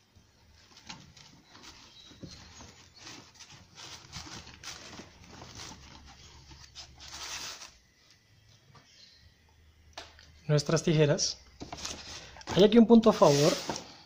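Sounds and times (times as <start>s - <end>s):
fabric and webbing rustling: 0.5s - 7.8s.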